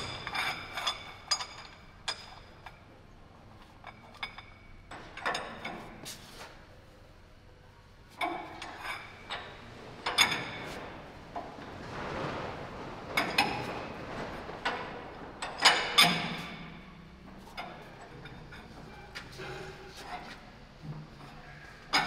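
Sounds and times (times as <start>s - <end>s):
metal-on-metal clanks: 0.0s - 2.5s, 8.2s - 20.3s
scraping rustle: 8.1s - 22.0s.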